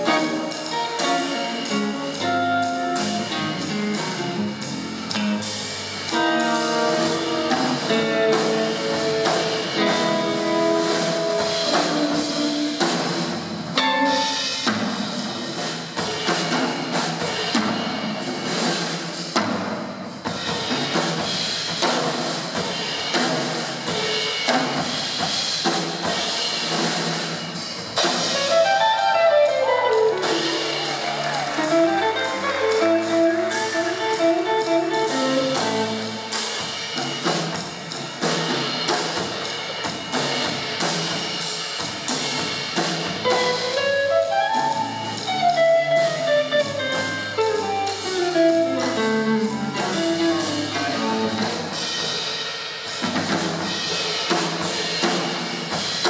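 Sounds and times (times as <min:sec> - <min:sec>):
electric guitar: 0:00.0 - 0:13.2, 0:13.8 - 0:14.9, 0:28.3 - 0:36.3, 0:43.2 - 0:51.8
bass: 0:00.0 - 0:56.0
drum kit: 0:00.0 - 0:56.0
jazz trio playing: 0:00.0 - 0:56.0.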